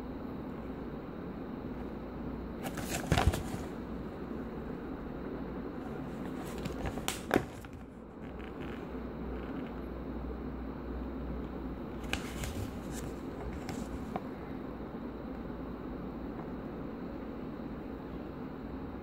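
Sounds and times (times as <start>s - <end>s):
steady low hum: 0.0s - 19.0s
paper rustling: 2.6s - 3.8s, 6.0s - 8.7s, 12.0s - 14.2s.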